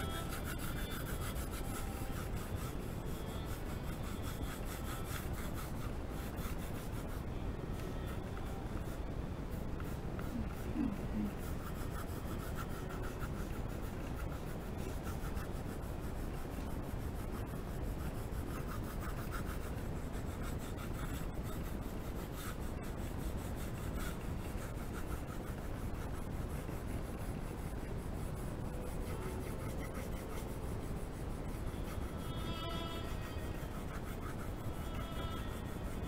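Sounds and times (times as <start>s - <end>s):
pencil scratching on paper: 0.0s - 36.0s
steady low hiss: 0.0s - 36.0s.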